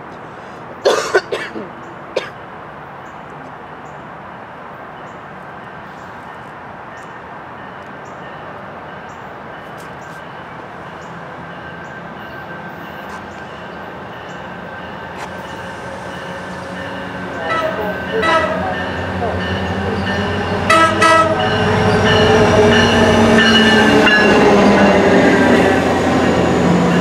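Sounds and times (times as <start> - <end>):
distant passenger train rumble: 0.0 - 27.0
person coughing: 0.8 - 2.3.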